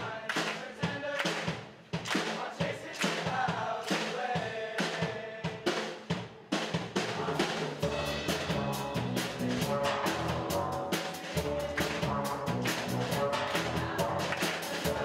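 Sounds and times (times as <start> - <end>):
drum kit beat: 0.0 - 15.0
sustained melody notes: 7.9 - 15.0.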